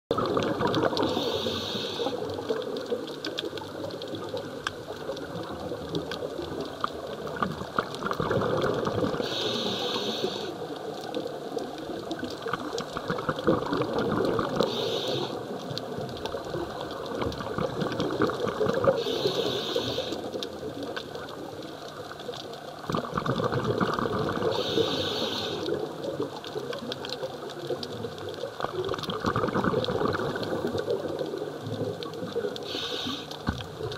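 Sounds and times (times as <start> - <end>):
bubbling exhales underwater: 0.1 - 4.4, 5.1 - 10.4, 12.0 - 15.6, 16.3 - 20.1, 22.8 - 33.1
hissing regulator inhales: 1.0 - 2.3, 9.2 - 10.6, 14.6 - 15.4, 19.0 - 20.3, 24.6 - 25.8, 32.6 - 33.4.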